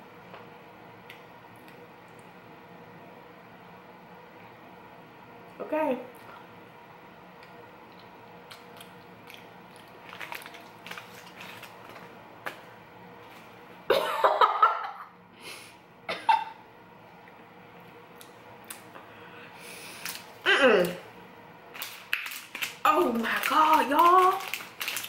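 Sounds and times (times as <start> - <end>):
paper wrapper crinkling: 8.6 - 12.6, 19.9 - 21.0, 21.7 - 25.0
woman coughing and gagging: 16.1 - 16.6.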